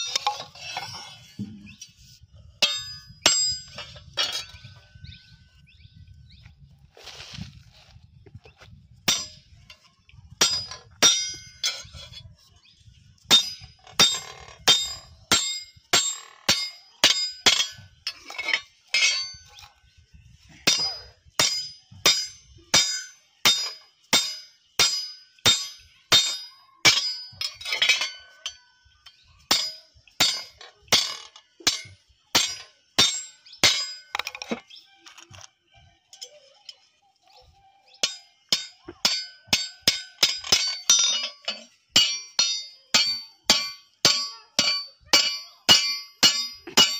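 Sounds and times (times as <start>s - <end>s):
hammer clinking on steel: 2.6s - 4.7s, 10.4s - 11.9s, 13.3s - 19.6s, 29.5s - 34.6s, 38.0s - 46.9s.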